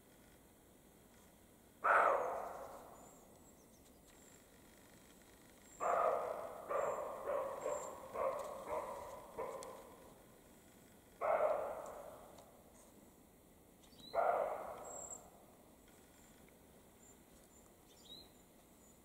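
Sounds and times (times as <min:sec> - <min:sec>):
deer barking: 0:01.8 - 0:03.0, 0:05.8 - 0:10.0, 0:11.2 - 0:12.4, 0:14.1 - 0:15.2.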